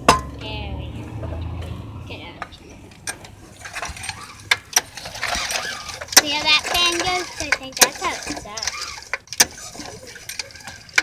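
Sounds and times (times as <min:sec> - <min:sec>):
clicks and knocks on engine: 0:02.4 - 0:11.0.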